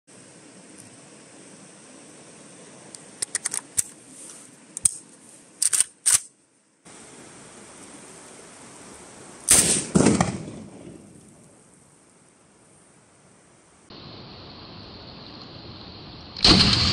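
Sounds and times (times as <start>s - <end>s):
rifle loading clicks: 3.2s - 4.0s, 4.8s - 6.3s
rifle shot: 9.5s - 11.0s, 16.4s - 16.9s.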